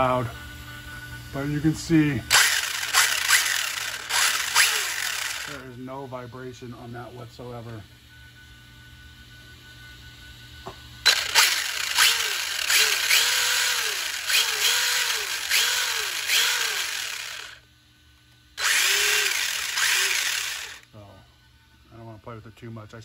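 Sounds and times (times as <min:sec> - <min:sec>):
electric rc car motor whining: 0:00.0 - 0:06.0, 0:11.0 - 0:17.6, 0:18.6 - 0:21.4.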